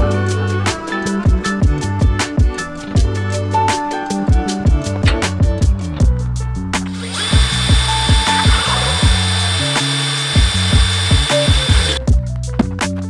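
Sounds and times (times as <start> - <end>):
background music with steady beat: 0.0 - 13.0
cordless drill whining: 6.9 - 12.0.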